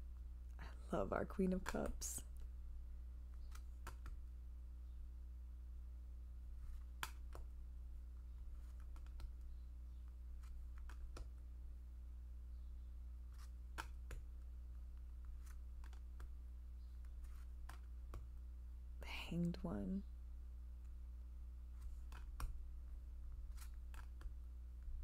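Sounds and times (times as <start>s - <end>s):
cards flipping and tapping: 3.3s - 4.3s, 6.6s - 7.6s, 8.4s - 11.4s, 13.3s - 18.4s, 21.7s - 25.0s.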